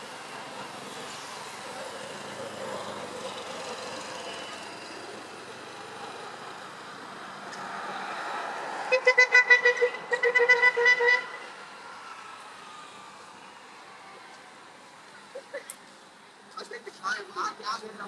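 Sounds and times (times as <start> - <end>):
passing traffic: 0.0 - 18.0
vehicle horn beeping: 8.9 - 11.5.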